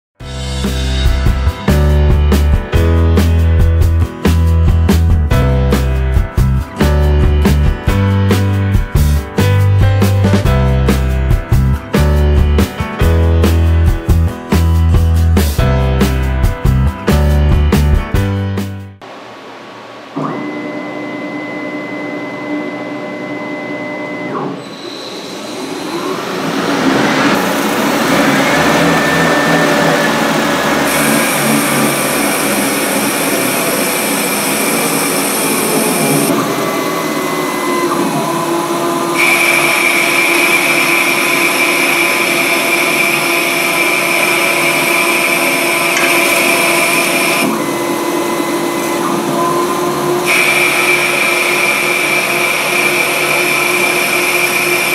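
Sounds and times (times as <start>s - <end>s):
electrical whine: 19.0s - 54.9s
high whine of cutting tool: 20.1s - 54.9s
lathe spindle whining: 20.3s - 54.9s.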